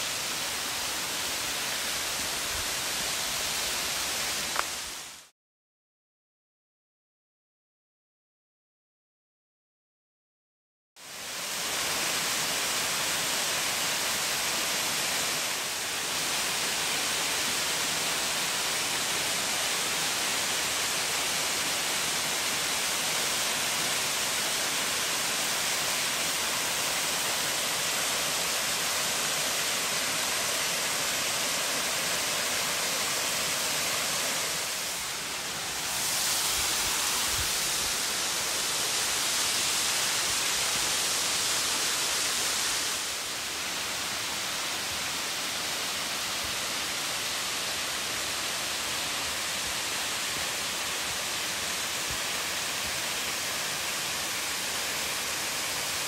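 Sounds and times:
waterfall pouring over rock: 0:11.0 - 0:56.0.

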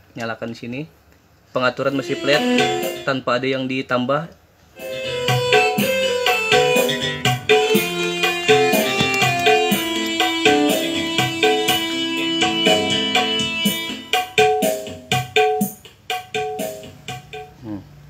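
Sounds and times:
music with drum hits: 0:02.0 - 0:03.1, 0:04.8 - 0:17.7.

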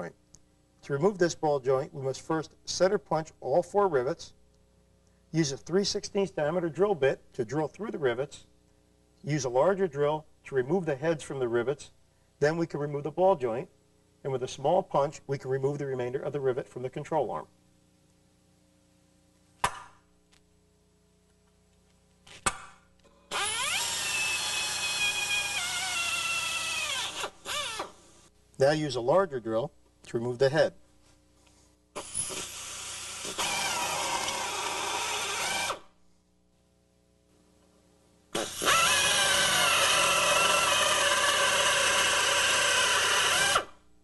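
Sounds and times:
hammer striking center punch: 0:19.6 - 0:20.0
drill drilling through metal: 0:23.3 - 0:28.1, 0:32.0 - 0:35.9, 0:38.4 - 0:43.8.

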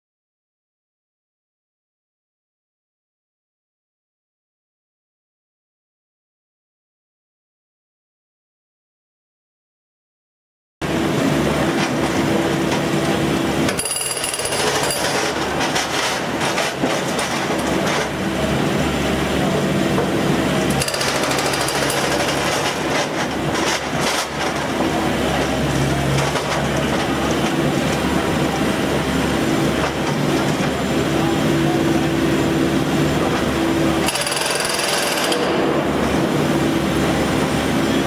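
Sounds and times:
hydraulic breaker hammering metal: 0:13.6 - 0:18.2, 0:20.0 - 0:27.5, 0:33.4 - 0:36.8.

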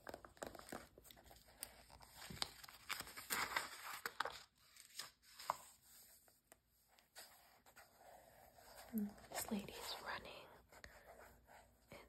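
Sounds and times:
magazine page turning: 0:00.0 - 0:05.9.

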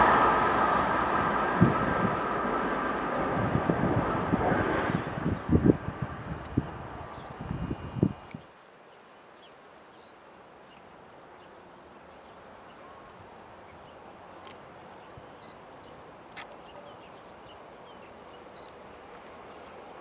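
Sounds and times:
distant train approaching: 0:00.0 - 0:08.3.

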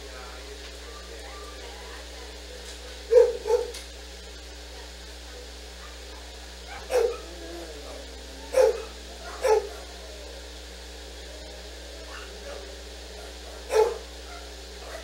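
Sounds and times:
dog barking: 0:03.1 - 0:03.8, 0:05.8 - 0:10.0, 0:12.0 - 0:15.0.

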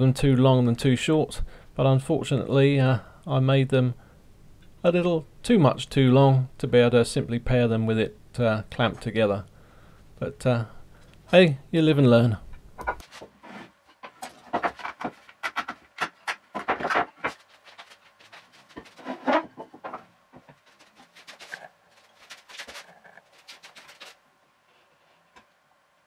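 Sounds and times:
wooden parts knocking and clattering: 0:12.8 - 0:24.2.

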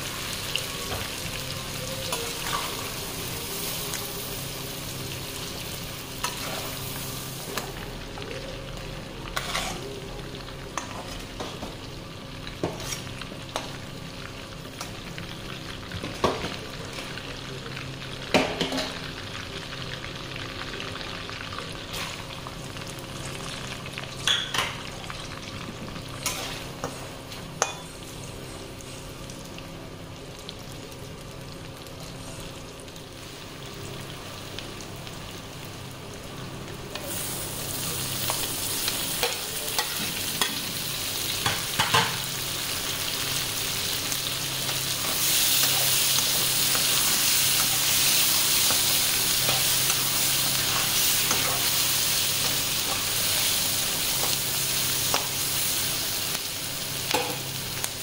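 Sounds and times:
oil sizzling in a pan: 0:00.0 - 0:58.0
metal spoon scraping a pan: 0:09.4 - 0:09.8.

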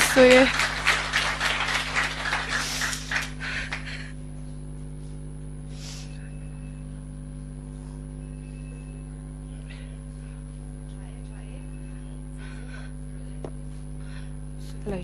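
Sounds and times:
low electrical hum: 0:00.0 - 0:15.0.

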